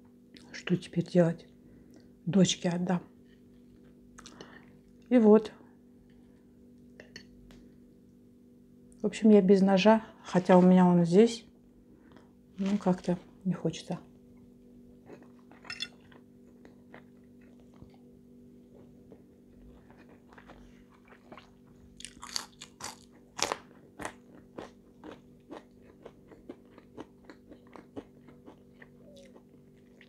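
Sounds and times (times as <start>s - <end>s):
faint steady hum: 0.0s - 30.0s
chewing crunchy fries: 14.9s - 30.0s.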